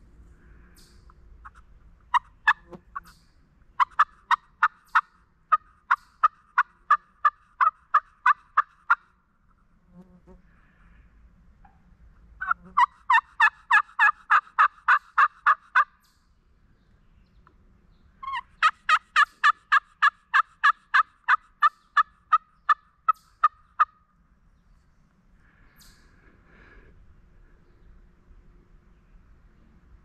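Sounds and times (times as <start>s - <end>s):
turkey calling: 0.8s - 9.2s, 12.4s - 16.2s, 18.2s - 24.1s.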